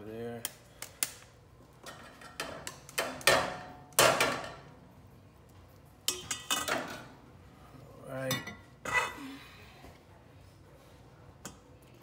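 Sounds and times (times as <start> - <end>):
metal utensils clanking on bowl: 6.1 - 7.1.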